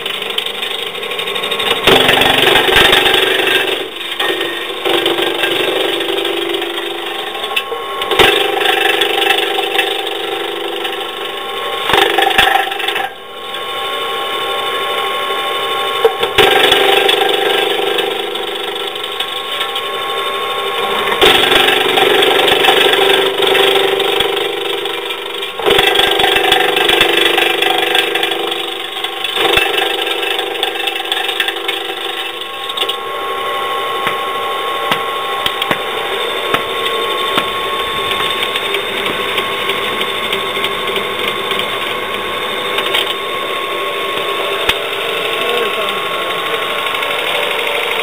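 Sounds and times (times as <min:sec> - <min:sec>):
branch chipper running: 0:00.0 - 0:48.0
wood chips ticking: 0:20.8 - 0:33.0, 0:34.0 - 0:48.0.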